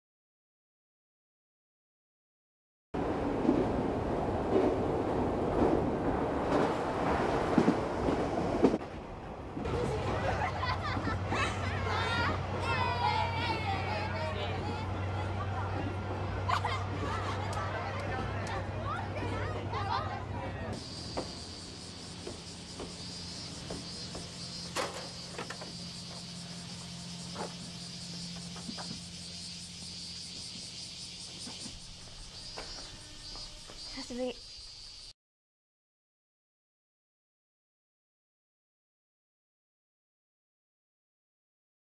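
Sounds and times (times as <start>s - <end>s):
wheels clunking over rail joints: 3.0s - 29.2s, 30.2s - 33.9s
train rumbling on rails: 3.0s - 34.2s
insects chirring: 20.7s - 35.2s.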